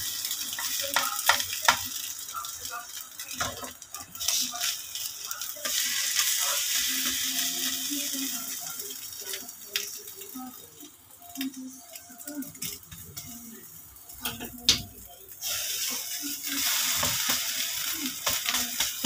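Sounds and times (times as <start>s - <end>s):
omelette sizzling in a frying pan: 0.0s - 19.0s
spatula tapping and scraping pan: 0.5s - 1.9s, 18.2s - 19.0s.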